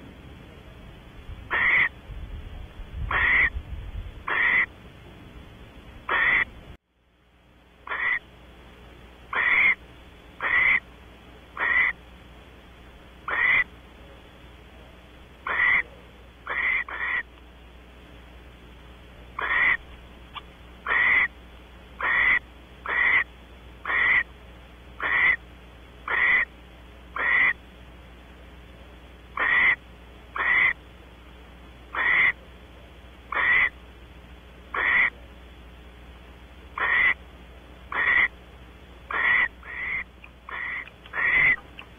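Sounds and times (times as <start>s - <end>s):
low steady hum: 0.0s - 41.9s
barn owl hissing calls: 1.5s - 2.0s, 3.1s - 3.6s, 4.2s - 4.7s, 6.0s - 6.5s, 7.8s - 8.3s, 9.3s - 9.8s, 10.4s - 10.9s, 11.5s - 12.0s, 13.2s - 13.7s, 15.4s - 17.3s, 19.3s - 21.4s, 22.0s - 24.3s, 25.0s - 25.4s, 26.0s - 26.5s, 27.1s - 27.6s, 29.3s - 30.8s, 31.9s - 32.4s, 33.3s - 33.8s, 34.7s - 35.2s, 36.7s - 37.2s, 37.9s - 38.4s, 39.0s - 41.9s.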